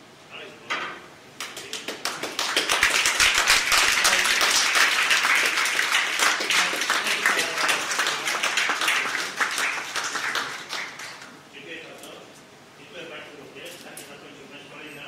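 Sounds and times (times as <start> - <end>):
audience applauding: 1.4 - 11.4.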